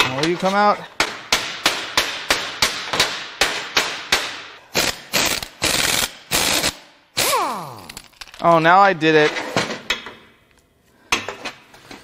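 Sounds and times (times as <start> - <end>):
pneumatic impact wrench rattle: 4.7 - 8.4.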